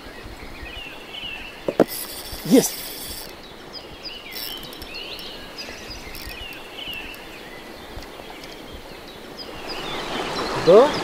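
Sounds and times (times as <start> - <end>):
flowing river water: 0.0 - 11.0
small birds chirping: 0.0 - 11.0
faint clicks: 4.3 - 8.9.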